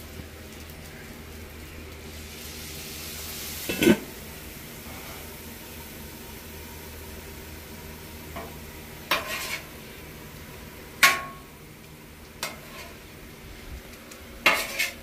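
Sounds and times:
food sizzling: 0.0s - 15.0s
metal spatula scraping griddle: 9.1s - 9.7s, 12.4s - 13.0s, 14.4s - 15.0s
sharp metallic clang: 11.0s - 11.5s.

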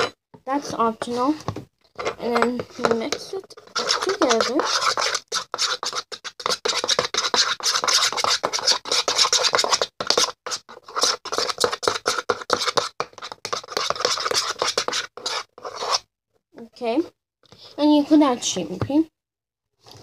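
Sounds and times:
utensil scraping around bowl: 2.0s - 16.0s.

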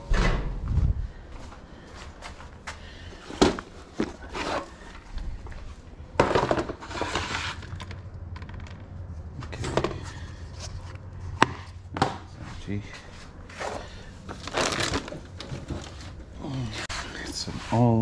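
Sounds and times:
scraping and rustling: 3.3s - 11.7s
household items knocking and clattering: 6.2s - 8.9s.

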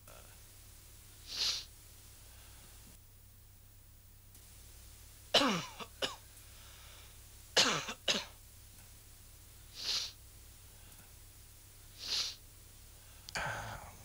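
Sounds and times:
man coughing: 5.4s - 6.2s, 7.6s - 8.3s, 13.4s - 14.0s.

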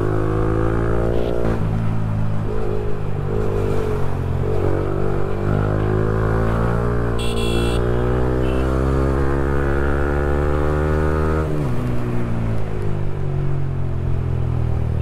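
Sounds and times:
motorcycle engine revving: 2.4s - 11.9s.

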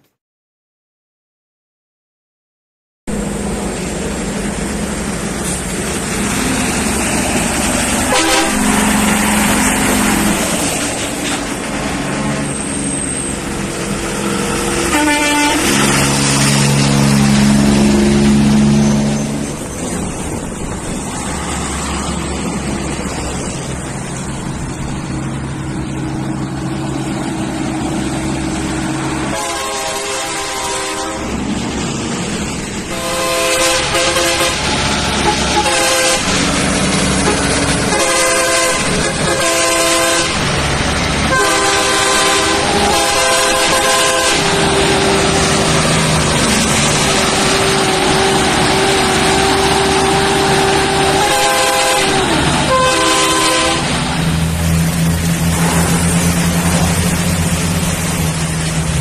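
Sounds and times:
trucks passing close by: 3.1s - 59.0s
air horns in held chords: 8.1s - 9.1s, 14.7s - 18.7s, 29.3s - 31.4s, 32.9s - 36.4s, 37.2s - 40.4s, 41.3s - 45.8s, 47.2s - 53.9s.

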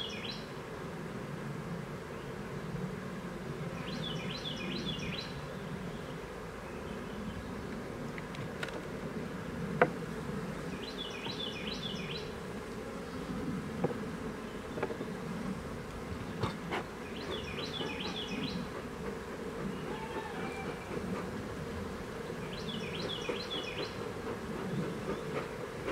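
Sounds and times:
honeybees buzzing: 0.0s - 25.9s
wooden knocks of hive frames: 13.8s - 14.1s, 14.7s - 15.2s.

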